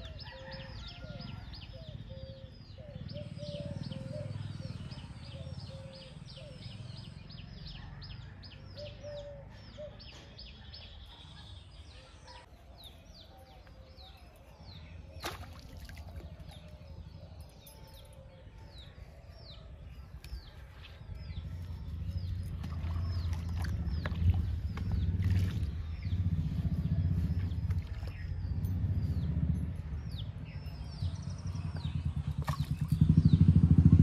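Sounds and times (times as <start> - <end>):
low rumble: 20.3 - 34.0.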